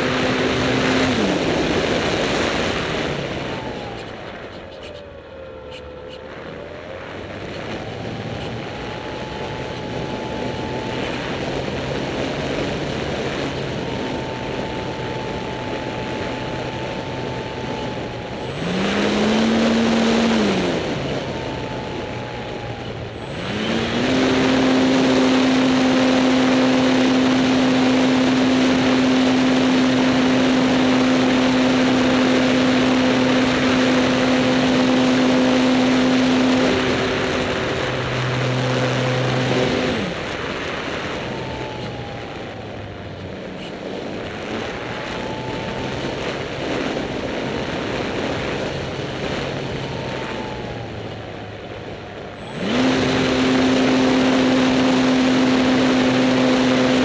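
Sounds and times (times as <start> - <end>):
electric motor and propeller whining: 0.0 - 57.0.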